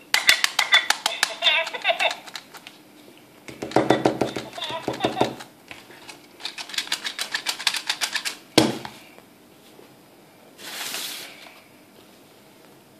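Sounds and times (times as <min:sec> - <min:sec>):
plastic toy mechanism clicking: 0:00.2 - 0:02.6, 0:06.4 - 0:08.4
toy knocking on tabletop: 0:03.6 - 0:05.4.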